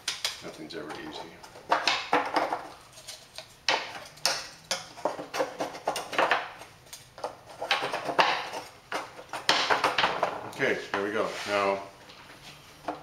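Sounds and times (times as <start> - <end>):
wooden strips clattering: 7.2 - 10.5.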